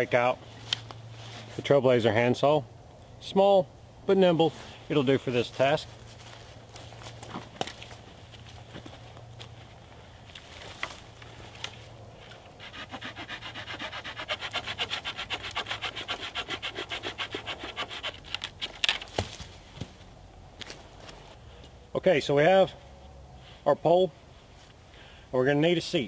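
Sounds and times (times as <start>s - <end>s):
footsteps in dry leaves: 4.6s - 12.4s
handsaw cutting wood: 12.6s - 18.3s.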